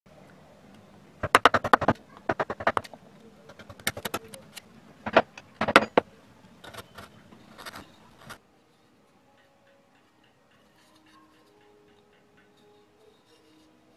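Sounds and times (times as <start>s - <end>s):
carving gouge chipping wood: 1.2s - 4.4s, 5.0s - 6.0s.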